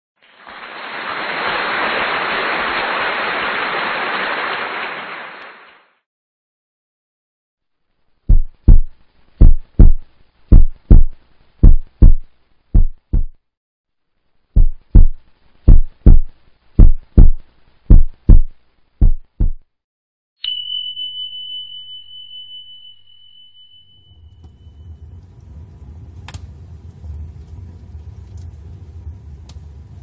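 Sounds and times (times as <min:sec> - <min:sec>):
heartbeat thumps: 0:08.3 - 0:13.4, 0:14.6 - 0:19.7
steady high tone: 0:20.4 - 0:25.2.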